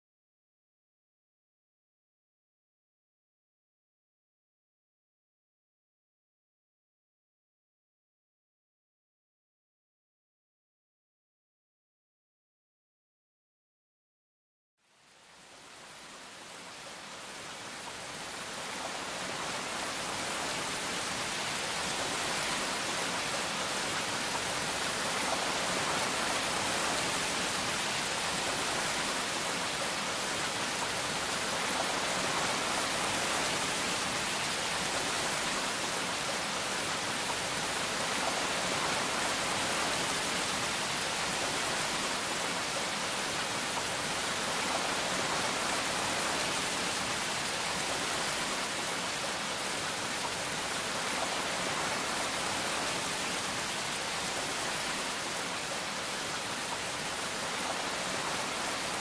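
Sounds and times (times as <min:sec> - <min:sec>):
falling rain hiss: 0:14.8 - 0:59.0.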